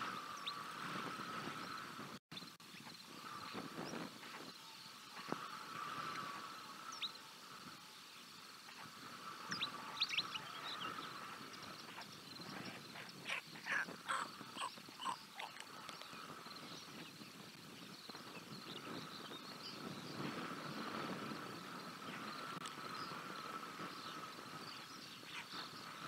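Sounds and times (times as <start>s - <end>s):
stork chicks calling: 8.8s - 16.3s.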